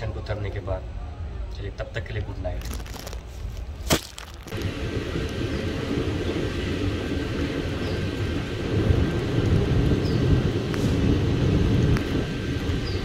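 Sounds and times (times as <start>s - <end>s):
passenger train rumbling: 4.5s - 13.0s.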